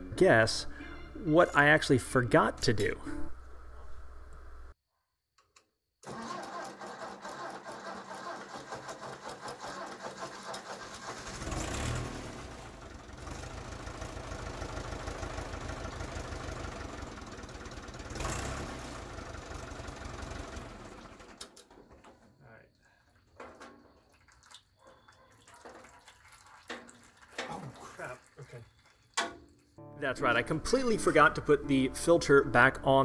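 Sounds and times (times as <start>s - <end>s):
tractor engine starter: 6.0s - 22.4s
diesel tractor engine running: 6.1s - 21.5s.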